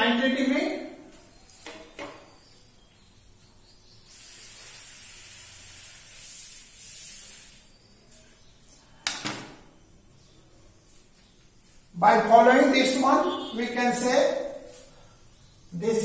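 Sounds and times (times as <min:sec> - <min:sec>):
duster rubbing on blackboard: 0:04.1 - 0:07.8.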